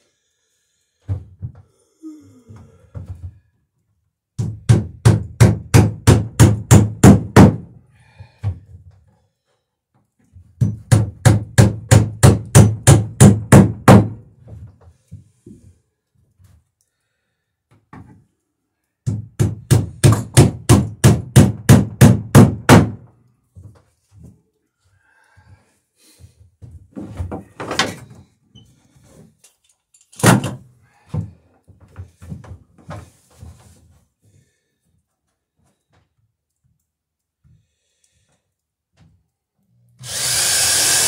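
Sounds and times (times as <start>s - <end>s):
hammer driving nails into wood: 4.4s - 7.8s, 10.6s - 14.2s, 19.0s - 23.1s, 30.1s - 30.7s.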